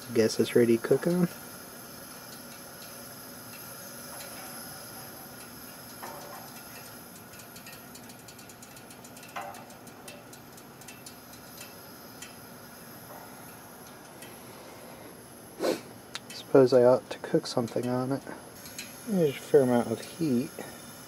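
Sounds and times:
camp stove burner hissing: 0.0 - 21.0
light ticks and clicks: 5.4 - 12.4, 16.1 - 16.5, 17.6 - 19.0.

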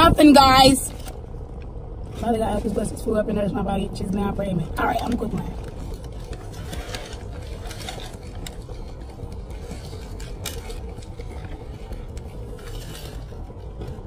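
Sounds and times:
car cabin hum: 0.0 - 14.0
paper wrapper crinkling: 4.9 - 14.0
crunchy chewing: 5.5 - 14.0.

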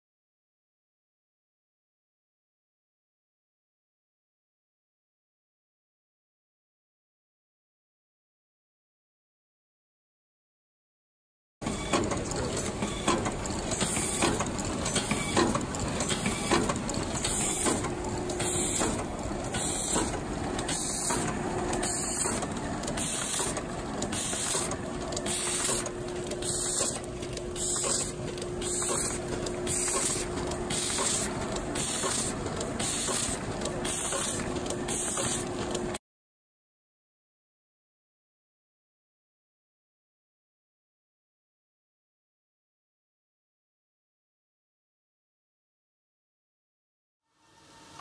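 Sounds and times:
machine mechanical clatter: 11.6 - 36.0.

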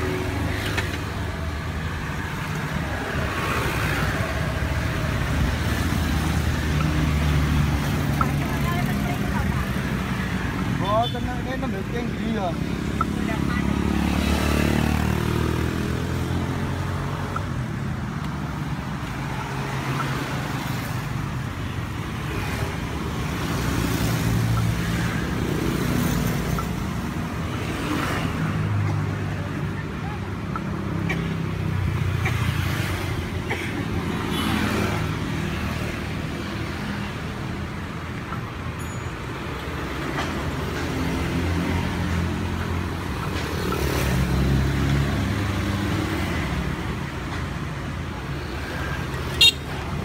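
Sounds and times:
vehicles passing by: 0.0 - 50.0.

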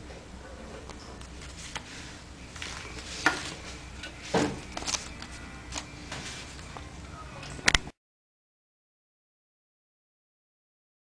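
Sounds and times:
cellophane crinkling: 4.6 - 6.6.

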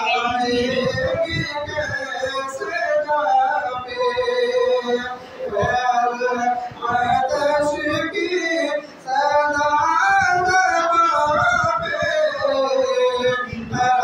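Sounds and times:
man singing into a microphone: 0.0 - 14.0.

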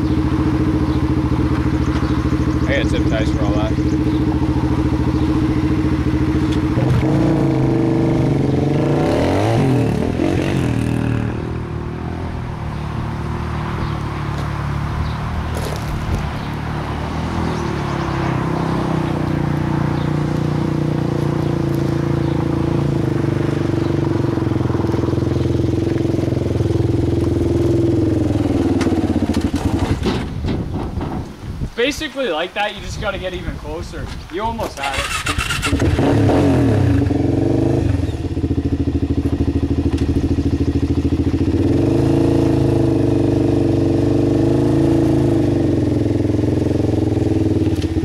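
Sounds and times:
quad engine revving: 0.0 - 12.2, 34.7 - 48.0.

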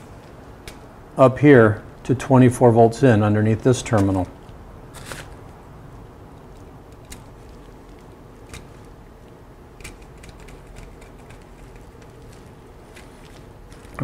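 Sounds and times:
low steady hum: 0.0 - 14.0
wire scraping in terminal: 2.8 - 5.7, 6.3 - 14.0.

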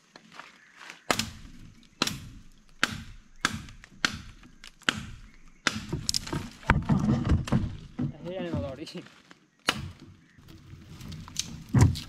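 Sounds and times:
knife chopping tree branch: 1.0 - 6.7, 9.6 - 10.0.

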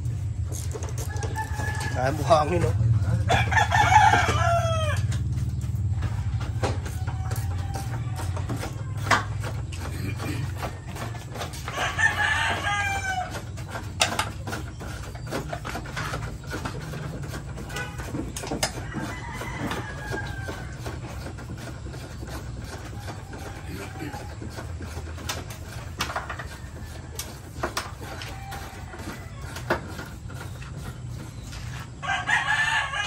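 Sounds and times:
rooster crowing: 1.0 - 5.3, 6.2 - 9.4, 10.1 - 13.7, 18.6 - 21.6, 22.2 - 25.0, 25.7 - 30.6, 32.0 - 33.0.

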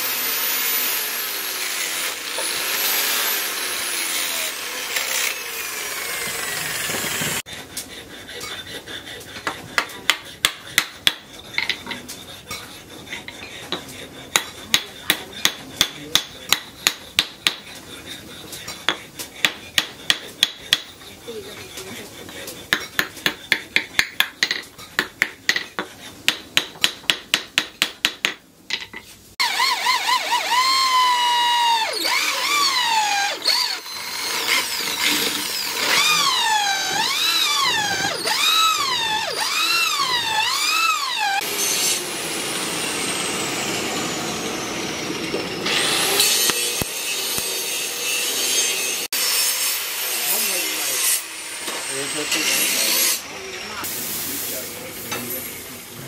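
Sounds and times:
angle grinder sanding wood: 0.0 - 24.5, 29.4 - 55.9
hatchet knocking on wooden handle: 9.4 - 12.0, 13.4 - 17.7, 18.8 - 21.0, 22.6 - 28.9.

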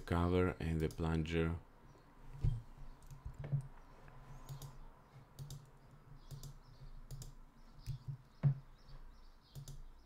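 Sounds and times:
computer mouse clicks: 2.4 - 4.8, 5.4 - 8.2, 9.5 - 9.9.

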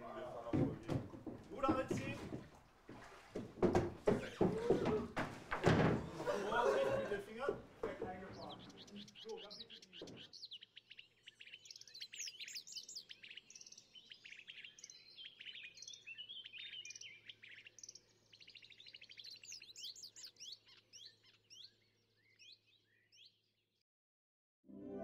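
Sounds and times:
songbirds chirping and trilling: 0.0 - 23.8.

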